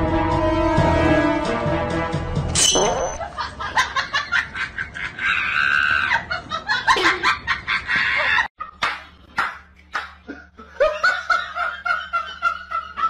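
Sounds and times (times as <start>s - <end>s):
woman laughing and giggling: 3.2s - 8.5s.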